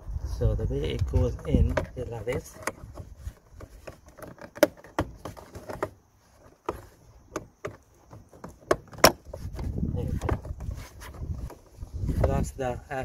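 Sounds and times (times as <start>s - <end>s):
plastic part clicking and knocking: 0.9s - 6.0s, 6.6s - 11.6s.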